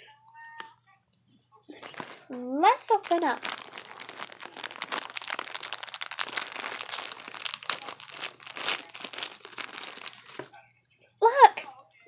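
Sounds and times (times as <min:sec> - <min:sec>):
plastic bag crinkling: 0:01.7 - 0:10.6.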